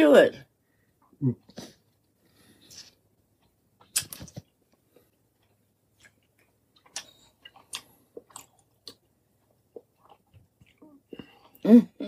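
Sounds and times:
chewing mouth clicks and smacks: 0:03.8 - 0:04.5, 0:05.4 - 0:09.1.

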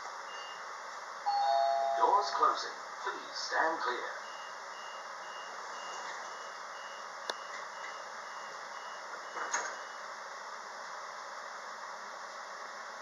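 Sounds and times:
train carriage hum: 0:01.2 - 0:04.1
train door warning beeps: 0:01.3 - 0:02.3, 0:04.2 - 0:10.0.

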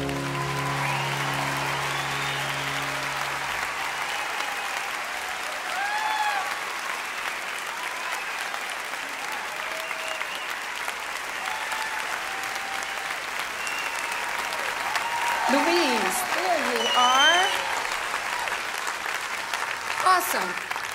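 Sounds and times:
song: 0:00.0 - 0:04.6
crowd clapping and cheering: 0:00.0 - 0:20.9.

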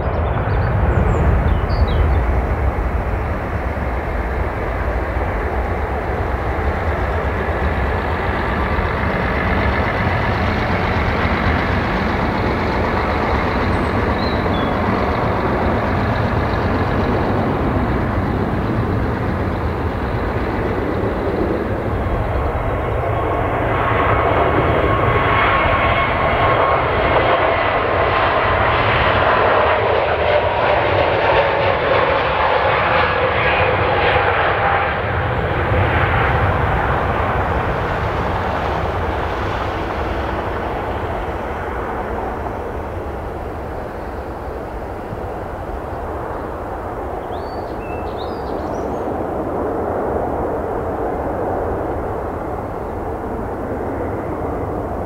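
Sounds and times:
jet airliner rumbling: 0:00.0 - 0:55.0
jet engines whining: 0:00.0 - 0:55.0.

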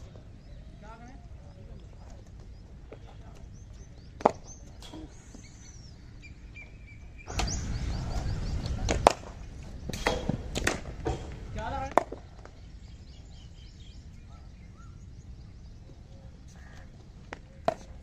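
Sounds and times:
birds chirping: 0:00.0 - 0:18.0
wind on microphone: 0:06.8 - 0:15.8
cricket ball knock: 0:17.6 - 0:18.0.

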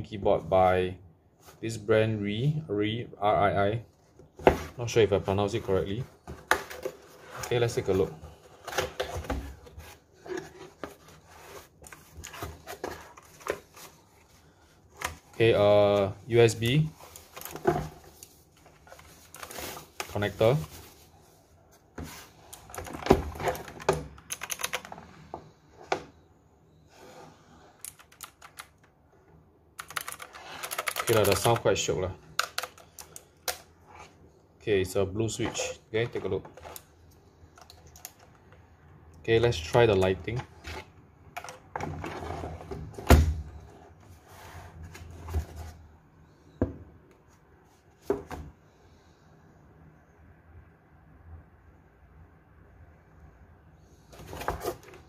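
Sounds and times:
mechanical keyboard clicks: 0:23.8 - 0:24.9, 0:27.8 - 0:28.8, 0:29.8 - 0:31.6
keyboard shifting in cardboard box: 0:54.2 - 0:55.0.

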